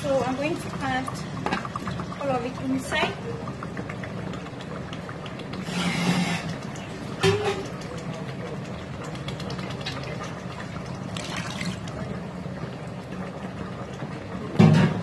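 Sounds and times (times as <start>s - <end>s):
liquid splashing into a pan: 0.1s - 12.1s.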